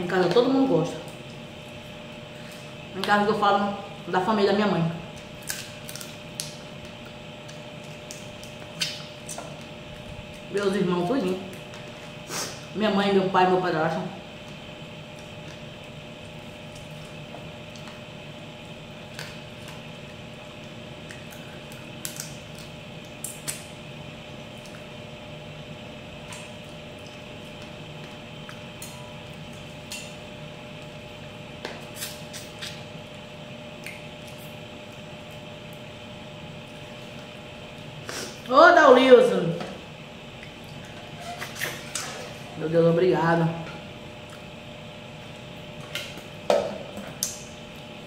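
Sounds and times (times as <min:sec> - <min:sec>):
steady background hum: 0:00.0 - 0:48.0
wet mouth eating noises: 0:05.1 - 0:10.5, 0:14.4 - 0:23.8, 0:30.8 - 0:35.9, 0:40.3 - 0:42.5, 0:44.2 - 0:47.9.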